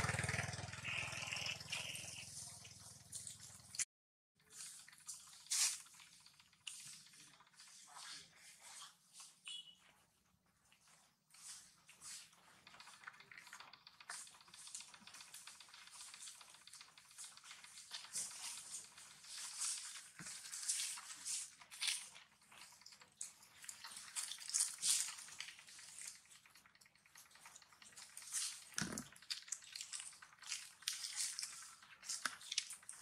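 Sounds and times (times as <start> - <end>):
monkeys rustling in dry leaves: 17.5 - 22.4, 29.5 - 33.0.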